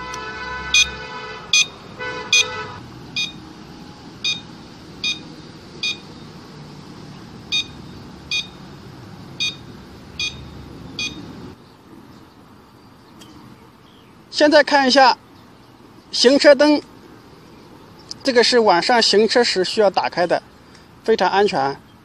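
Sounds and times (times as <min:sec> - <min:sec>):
steady buzzing tone: 0:00.0 - 0:11.6
turn-signal beeps: 0:01.6 - 0:02.5, 0:03.2 - 0:03.4, 0:04.2 - 0:06.2, 0:07.5 - 0:08.6, 0:09.4 - 0:11.3.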